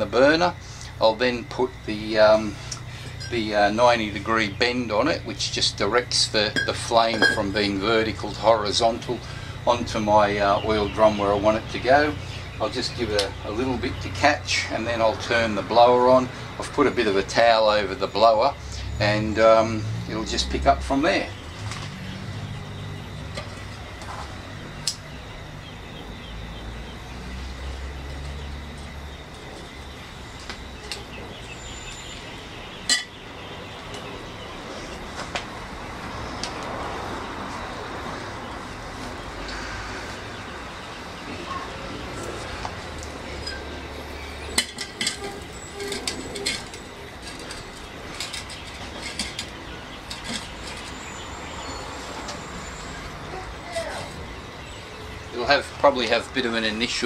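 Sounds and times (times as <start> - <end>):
metallic clinks and scrapes of pipe: 2.7 - 3.4, 6.5 - 7.8, 43.4 - 43.7, 44.4 - 51.0.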